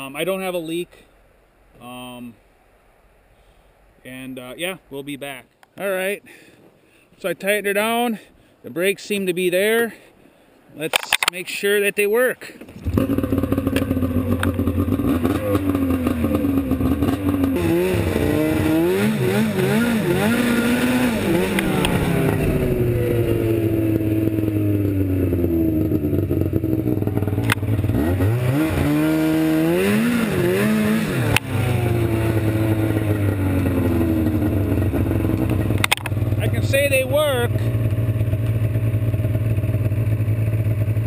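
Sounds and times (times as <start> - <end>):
sharp click: 10.9 - 11.4, 35.4 - 36.2
snowmobile engine revving: 12.8 - 41.0.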